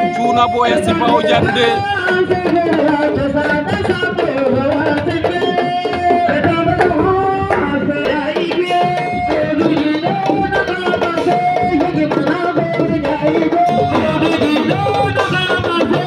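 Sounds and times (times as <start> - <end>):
person singing long notes: 0.0 - 2.0
drums playing dense rhythm: 0.0 - 16.0.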